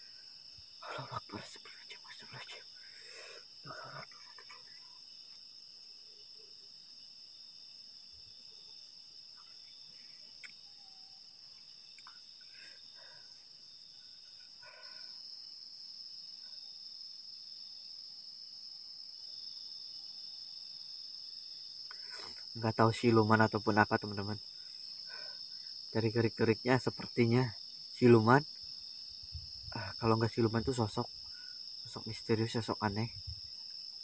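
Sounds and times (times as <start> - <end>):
night insects chirring: 0.0 - 34.0
faint tick: 12.0 - 12.2.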